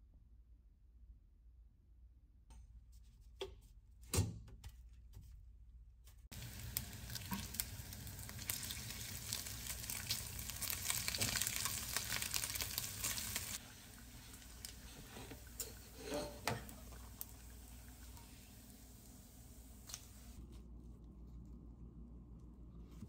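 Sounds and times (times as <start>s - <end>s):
bacon sizzling in a frying pan: 6.3s - 20.4s.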